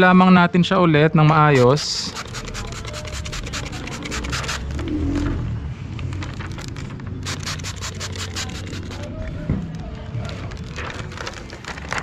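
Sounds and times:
film crinkling against glass: 6.0s - 12.0s.

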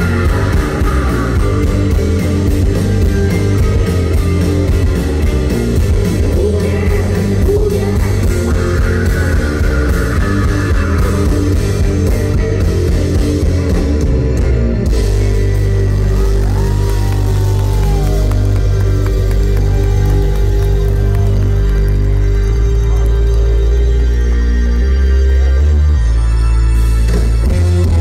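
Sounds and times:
person singing: 0.0s - 2.1s, 6.0s - 12.0s
live rock band playing: 0.0s - 28.0s.

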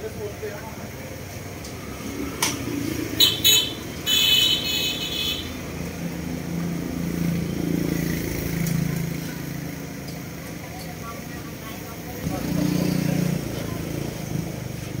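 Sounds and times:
motorbike engine running: 6.0s - 15.0s.

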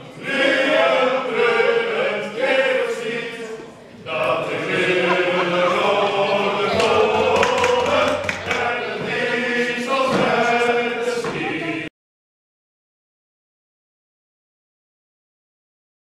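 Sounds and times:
protesters chanting in unison: 0.0s - 11.9s.

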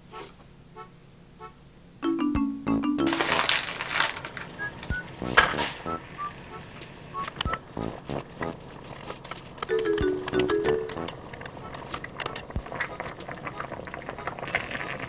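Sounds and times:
background music: 2.0s - 6.3s, 9.7s - 11.3s
dry spaghetti rattling in saucepan: 3.1s - 4.9s.

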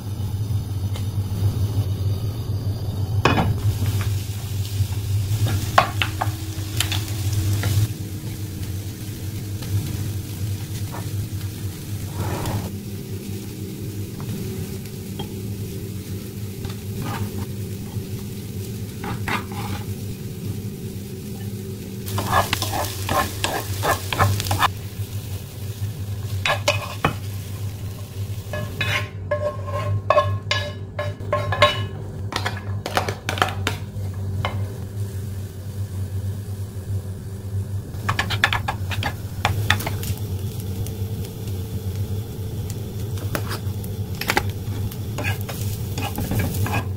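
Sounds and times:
steady low hum: 0.0s - 46.9s
vegetables sizzling in a frying pan: 0.0s - 46.9s
wooden spatula scraping a pan: 12.0s - 12.7s, 16.7s - 17.5s, 19.0s - 20.0s, 22.1s - 24.7s, 26.4s - 27.3s, 28.5s - 33.4s, 45.2s - 46.9s.

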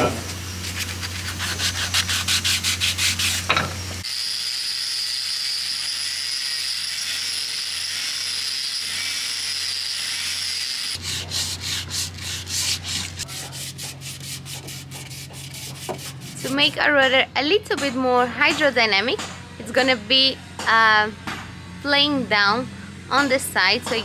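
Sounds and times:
hand sanding wood: 0.6s - 3.5s, 11.0s - 16.8s.

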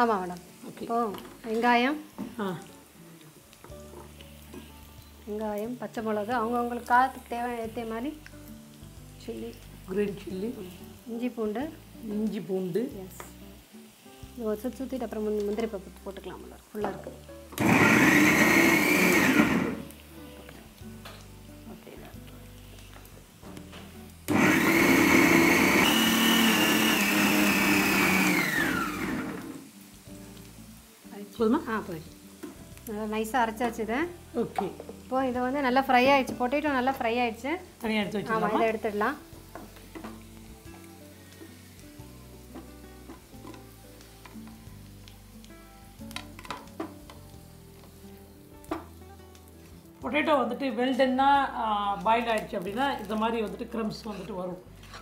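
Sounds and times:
potatoes sizzling in oil: 0.0s - 55.0s
mixer grinder motor whining: 17.6s - 19.8s, 24.3s - 29.6s.

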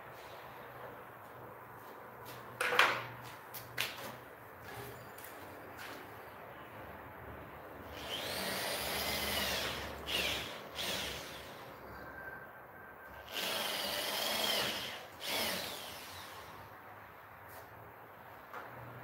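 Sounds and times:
power drill drilling into plastic: 8.0s - 11.6s, 13.3s - 16.4s.

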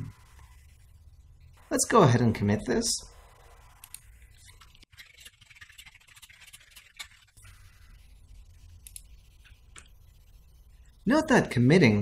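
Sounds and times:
faint keyboard typing: 3.7s - 7.6s.

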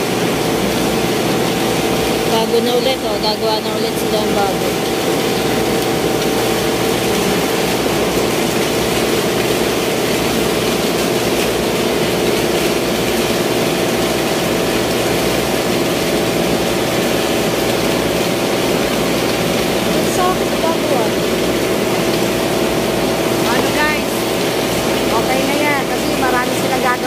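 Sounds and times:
machinery droning: 0.0s - 8.5s, 18.0s - 27.0s.

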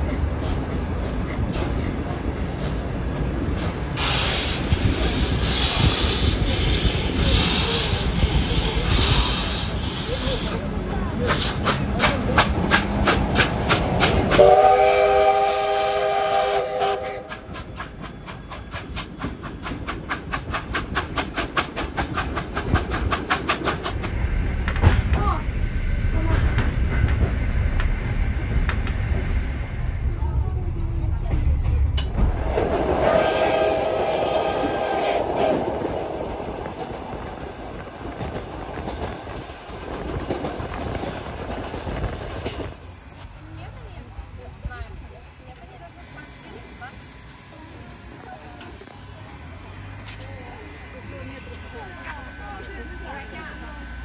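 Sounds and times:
clickety-clack over rail joints: 0.0s - 14.7s, 16.7s - 33.1s, 34.6s - 49.1s
rhythmic train beats: 0.0s - 54.0s
steam locomotive whistle: 14.3s - 17.5s, 33.0s - 35.8s.

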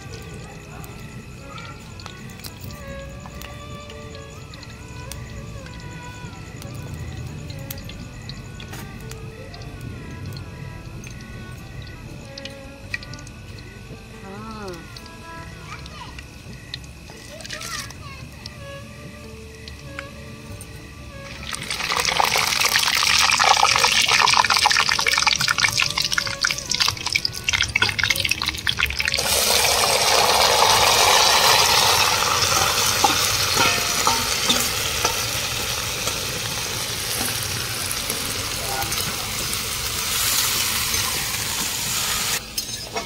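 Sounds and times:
food sizzling in hot oil: 0.0s - 43.0s.

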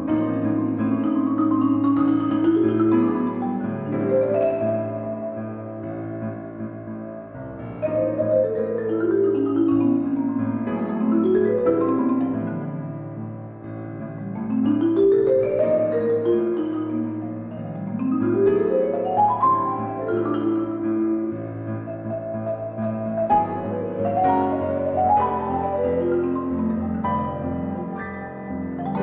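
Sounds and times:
grand piano accompaniment: 0.0s - 29.0s
marimba fast runs: 0.9s - 5.6s.

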